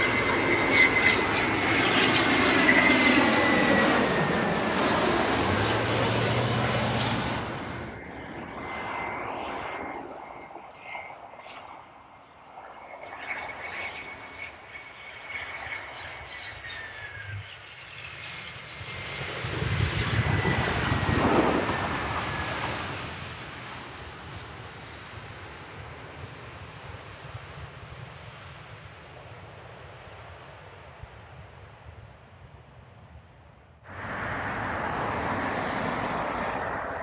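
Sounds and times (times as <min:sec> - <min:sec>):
airliner engine whine and rumble: 0:00.0 - 0:37.0.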